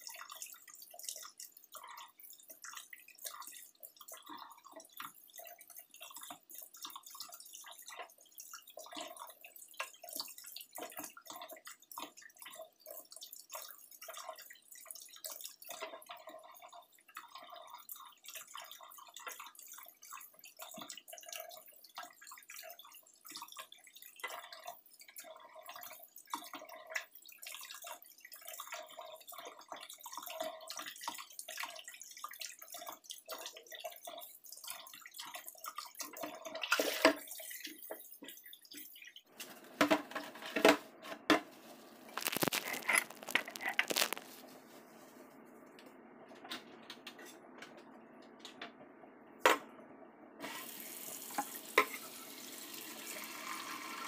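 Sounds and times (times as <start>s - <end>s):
tap water running into sink: 0.0s - 44.3s, 50.4s - 54.0s
leaves rustling in hands: 41.6s - 45.4s.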